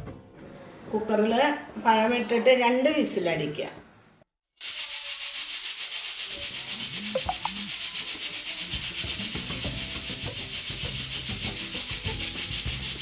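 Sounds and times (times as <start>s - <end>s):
pressure cooker whistling: 4.6s - 13.0s.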